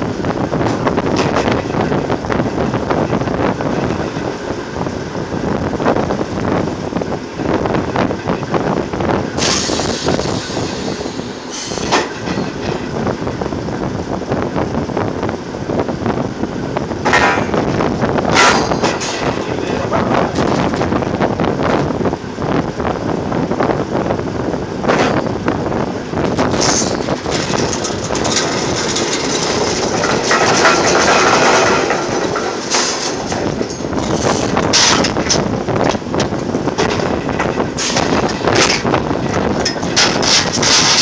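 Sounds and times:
drilling machinery running: 0.0 - 41.0
sharp metal clanks: 9.4 - 12.7, 18.3 - 19.7, 26.4 - 35.5, 36.8 - 41.0.

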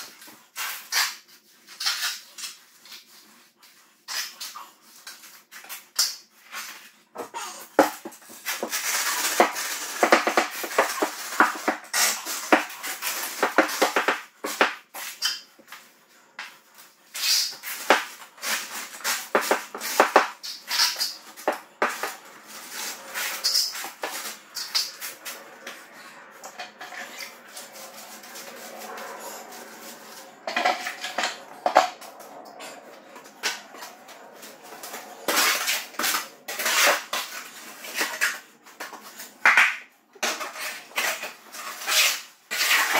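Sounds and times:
trowel scraping on concrete: 0.1 - 15.8, 17.1 - 39.6, 40.2 - 42.9
wooden board rasping across floor: 6.6 - 15.4, 17.2 - 32.1.

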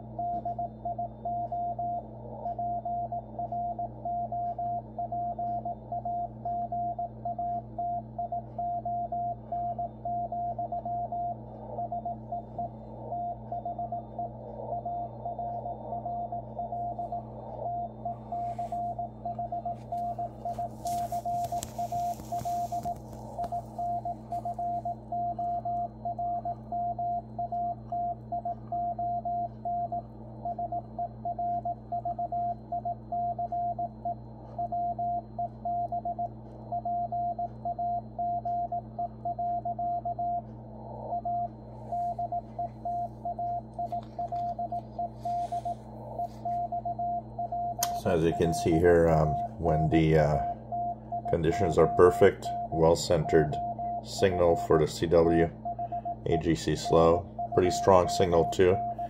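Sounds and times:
morse code beeps: 0.0 - 59.0
radio band noise hiss: 19.8 - 24.5.

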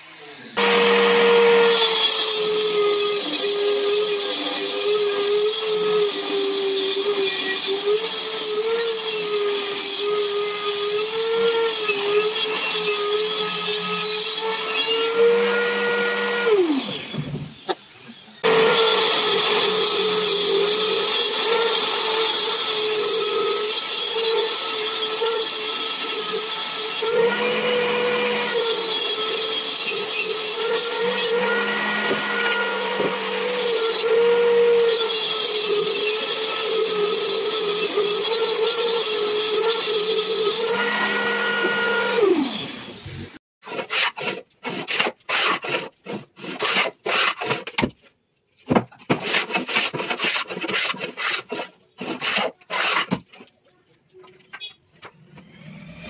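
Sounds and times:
table saw whining: 0.0 - 43.4
hand plane on wooden board: 43.6 - 47.9, 49.0 - 53.5.

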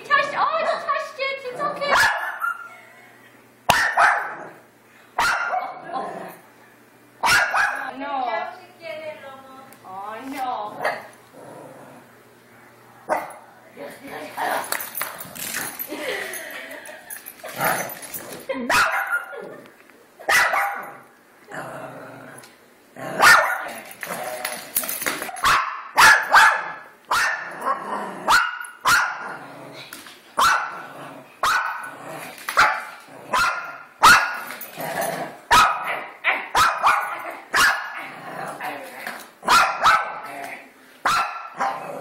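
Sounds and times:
small dog barking: 1.9 - 2.7, 3.7 - 4.5, 5.2 - 5.8, 7.2 - 7.9, 18.7 - 19.4, 20.3 - 21.0, 23.2 - 23.7, 25.4 - 27.5, 28.3 - 29.2, 30.4 - 30.8, 31.4 - 31.8, 32.6 - 34.4, 35.5 - 38.0, 39.5 - 40.2, 41.0 - 41.8.

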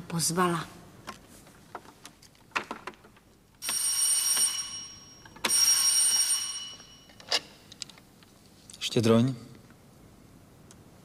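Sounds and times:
electric bell ringing: 3.6 - 7.4.

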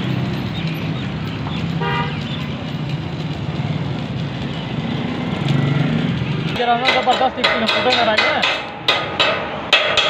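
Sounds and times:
low hum and road noise: 0.0 - 10.0
vehicle horn toot: 1.8 - 2.2.

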